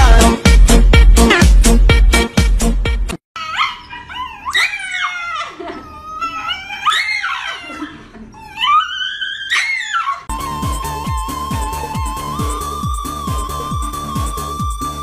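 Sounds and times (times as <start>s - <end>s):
music: 0.0s - 3.2s, 10.3s - 15.0s
dog howling: 3.4s - 10.3s.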